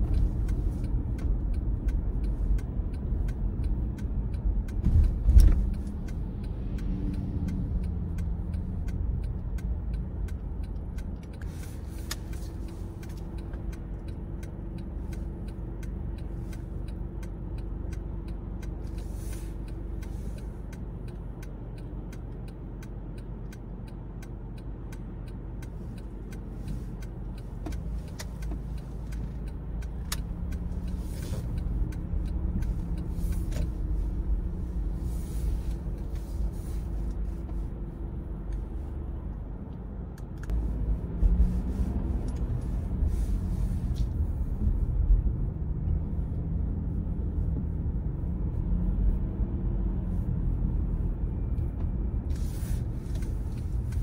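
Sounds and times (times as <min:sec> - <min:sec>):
small ticks: 0:00.0 - 0:34.8
car engine and road rumble: 0:00.0 - 0:54.0.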